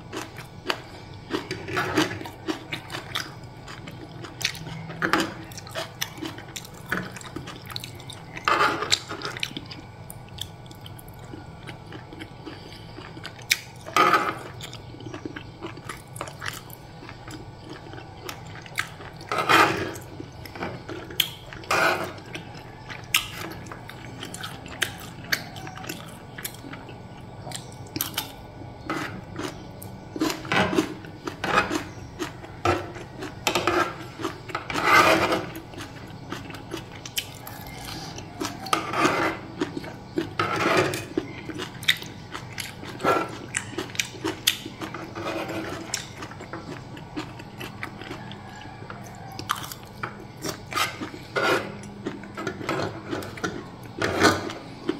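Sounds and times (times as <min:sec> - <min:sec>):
chewing: 0:00.0 - 0:54.9
fork and spoon scraping tray: 0:32.6 - 0:35.6, 0:37.9 - 0:39.5, 0:40.3 - 0:41.1, 0:50.5 - 0:54.6.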